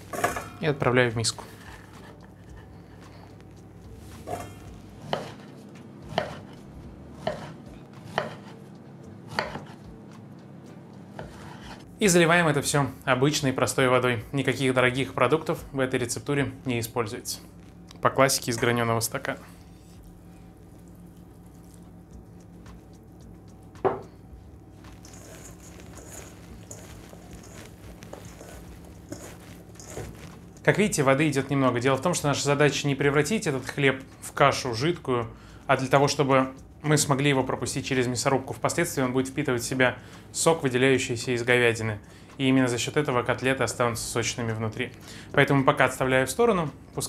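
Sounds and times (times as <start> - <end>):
knife knocking on board: 23.8 - 24.1.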